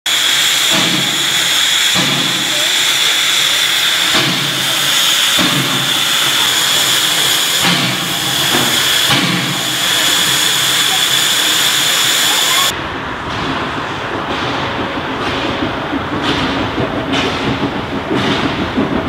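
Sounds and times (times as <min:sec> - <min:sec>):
steam locomotive venting steam: 0:00.1 - 0:19.0.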